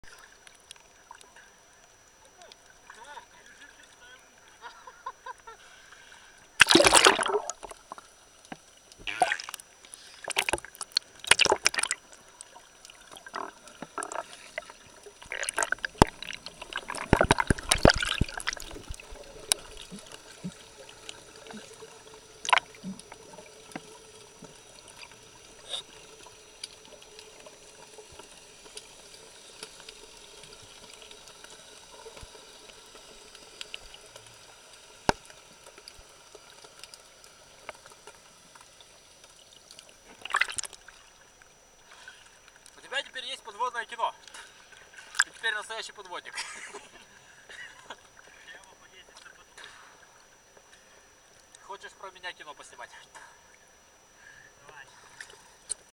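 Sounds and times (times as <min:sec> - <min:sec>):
faint underwater hiss: 0:00.1 - 0:55.9
underwater bubbling: 0:06.0 - 0:42.8
water rush of plunging under: 0:06.6 - 0:08.0, 0:10.3 - 0:12.0, 0:13.2 - 0:20.7, 0:22.4 - 0:23.4
sharp underwater clicks: 0:06.6 - 0:21.6, 0:22.4 - 0:25.2.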